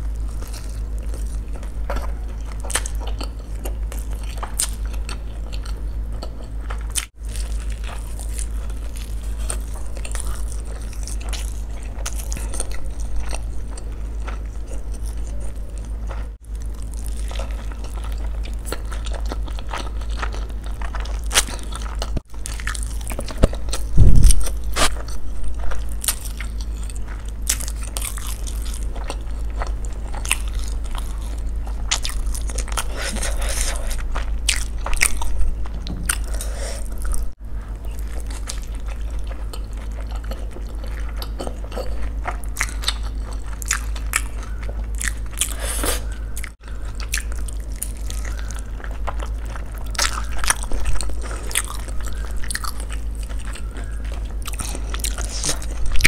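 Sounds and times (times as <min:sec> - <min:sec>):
crunchy bites and wet chewing: 0:00.0 - 0:56.0
low electrical hum: 0:00.0 - 0:56.0
loud low thump: 0:24.0 - 0:24.5.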